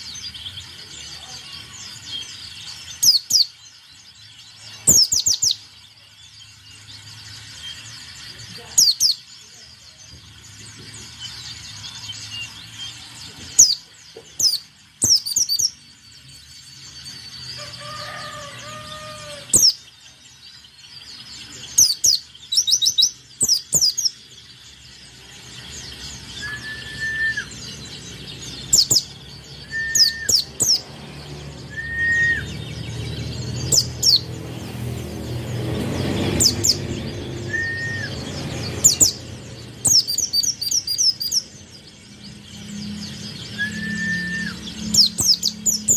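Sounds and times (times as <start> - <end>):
bird singing high falling notes: 26.3 - 34.4, 36.4 - 45.9.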